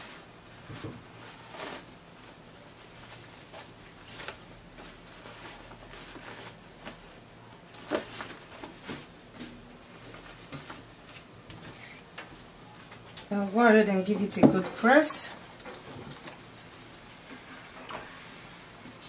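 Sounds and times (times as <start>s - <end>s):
fabric rustling: 0.0s - 13.0s.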